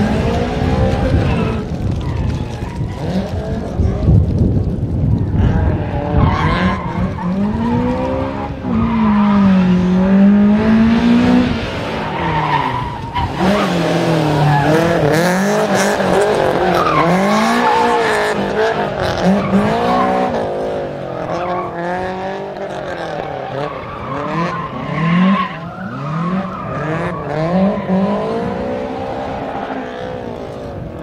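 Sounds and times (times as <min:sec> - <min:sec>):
tyres squealing and skidding: 0:00.2 - 0:03.8, 0:05.2 - 0:10.3, 0:11.6 - 0:30.8
car engine revving hard: 0:05.4 - 0:25.4, 0:26.0 - 0:30.4.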